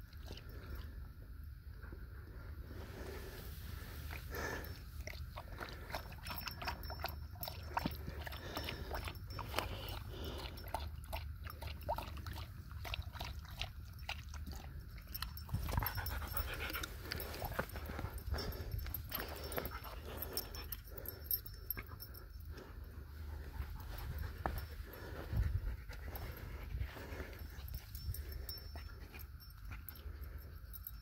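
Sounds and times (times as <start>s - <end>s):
dog lapping water: 4.3s - 18.6s.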